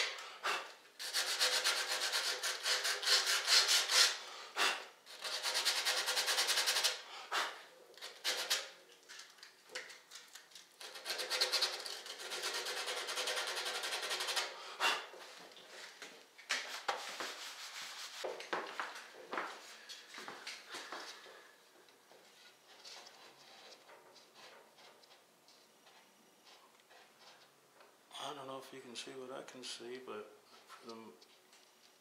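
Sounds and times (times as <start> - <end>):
sandpaper rubbing on wood: 0.5 - 8.7, 10.9 - 14.6, 17.0 - 18.3.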